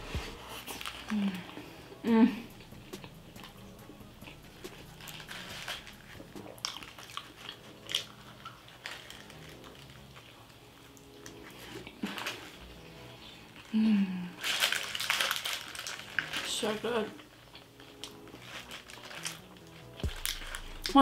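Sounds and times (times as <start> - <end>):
food crunching: 0.4 - 13.8, 14.4 - 21.0
chewing with mouth clicks: 2.5 - 12.4, 17.4 - 21.0.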